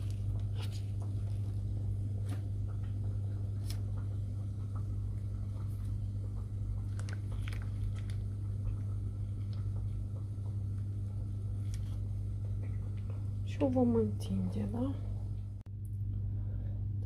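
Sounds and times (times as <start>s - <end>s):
steady low hum: 0.0s - 17.0s
plastic wrapper crackling: 6.8s - 9.7s.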